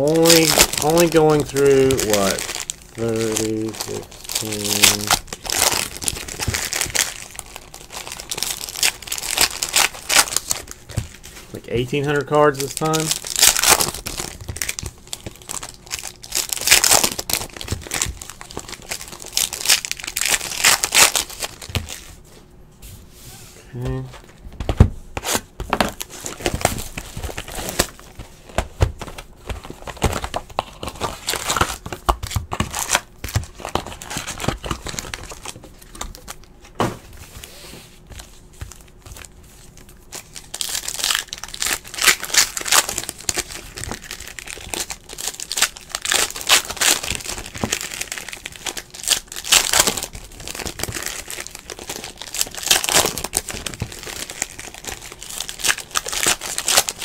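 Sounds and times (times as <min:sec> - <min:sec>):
cards rustling: 0:00.0 - 0:22.1
plastic wrappers tearing and crinkling: 0:00.0 - 0:22.1, 0:25.2 - 0:36.5, 0:38.2 - 0:57.0.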